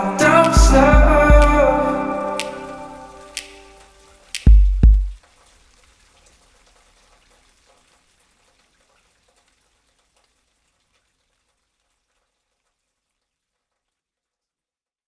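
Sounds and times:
faint hiss: 0:00.0 - 0:04.5
tiny ticks: 0:03.4 - 0:05.4.

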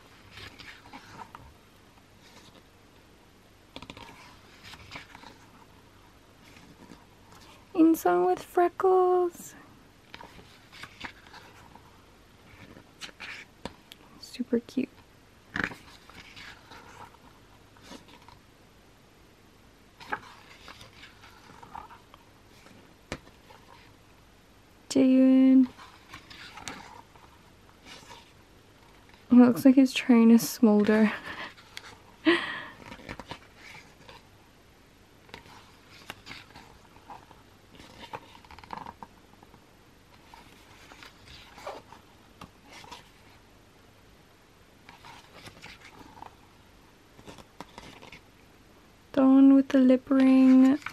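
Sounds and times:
book pages turning: 0:00.0 - 0:02.7, 0:03.7 - 0:05.8, 0:06.4 - 0:07.7, 0:10.0 - 0:14.1, 0:15.5 - 0:18.4, 0:20.0 - 0:24.0, 0:25.1 - 0:34.3, 0:35.2 - 0:43.4, 0:44.8 - 0:48.3, 0:50.0 - 0:50.9.

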